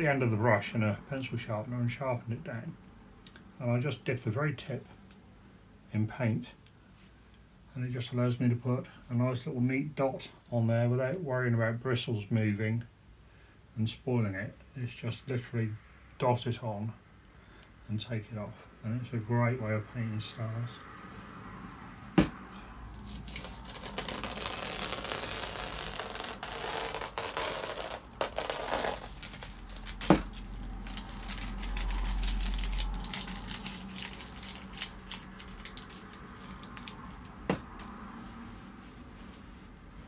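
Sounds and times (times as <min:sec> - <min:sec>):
paper rustling and crinkling: 0:22.9 - 0:37.4.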